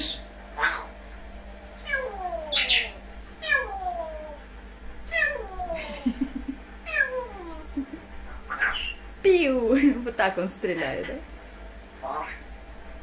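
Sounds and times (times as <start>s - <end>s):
parrot hissing: 2.5s - 3.6s, 8.3s - 9.0s, 12.0s - 12.4s
parrot whistling pew: 8.5s - 9.0s.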